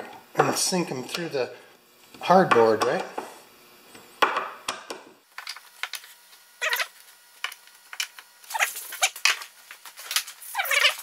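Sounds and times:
screws squeaking and clicking: 6.6s - 6.9s, 8.5s - 9.2s, 10.4s - 11.0s.

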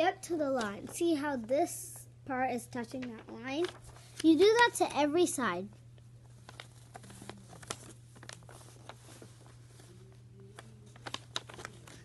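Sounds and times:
low steady hum: 0.0s - 12.0s
paper being folded: 2.8s - 4.8s, 5.9s - 12.0s.

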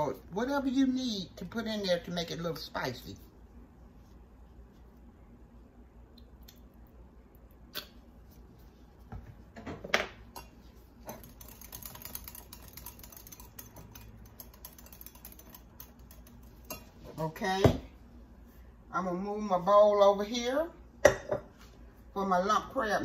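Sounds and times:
whisk ticking against glass: 10.4s - 16.9s.

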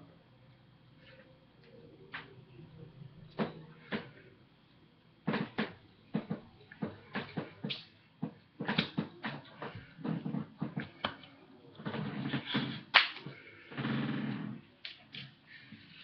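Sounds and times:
hands tapping and slapping: 5.3s - 11.3s.

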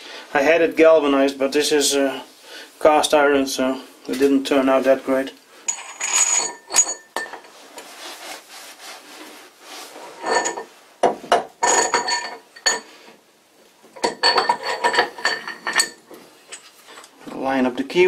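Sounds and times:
ringing metal clinks: 5.7s - 7.4s
metal scraping and rubbing: 5.7s - 10.8s, 11.6s - 12.9s, 14.0s - 17.2s.

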